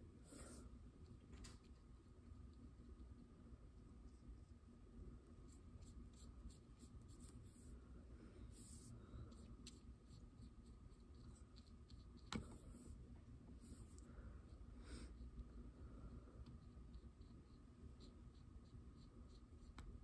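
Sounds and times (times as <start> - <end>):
paintbrush scratching on paper: 5.4 - 7.8, 8.4 - 13.0, 13.6 - 15.6, 16.6 - 20.0.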